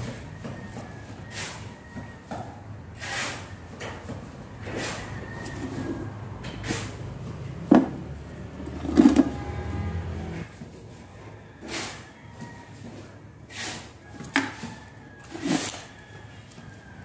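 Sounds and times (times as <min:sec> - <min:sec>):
metal scraping and knocking on wood: 0:00.0 - 0:10.9.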